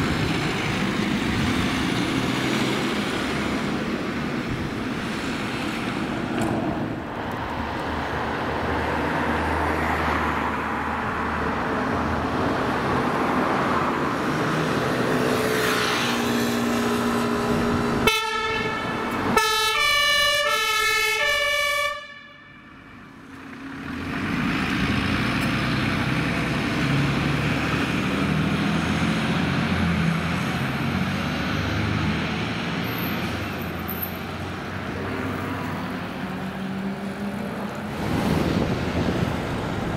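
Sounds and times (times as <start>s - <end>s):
engine and traffic noise: 0.0s - 39.9s
two-tone emergency siren: 17.3s - 23.0s.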